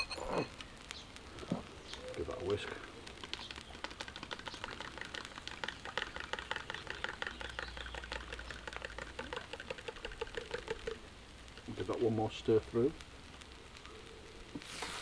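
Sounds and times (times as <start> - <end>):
fork beating eggs in a jug: 3.8 - 11.0.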